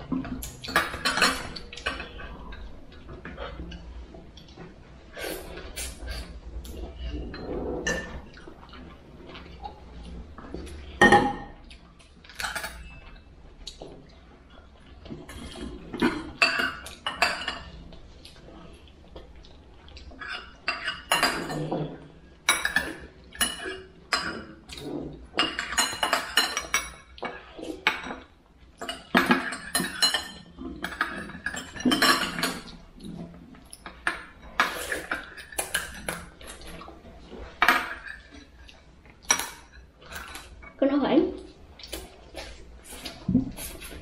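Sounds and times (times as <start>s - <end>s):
cutlery clinking against dishes: 0.3s - 2.3s, 12.2s - 13.2s, 15.3s - 17.8s, 20.1s - 32.8s, 33.7s - 38.5s, 39.2s - 40.8s.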